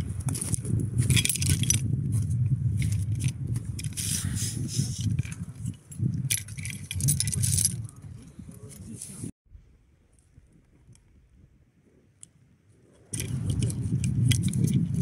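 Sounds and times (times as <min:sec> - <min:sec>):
metal carabiners clinking: 0:00.3 - 0:01.9, 0:05.0 - 0:08.0.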